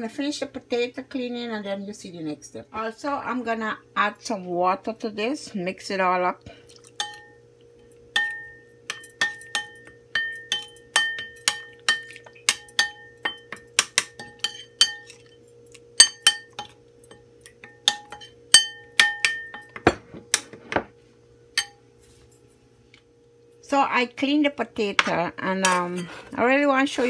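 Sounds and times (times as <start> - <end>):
metal spoon clinking ceramic bowl: 8.2 - 15.4, 16.0 - 20.0.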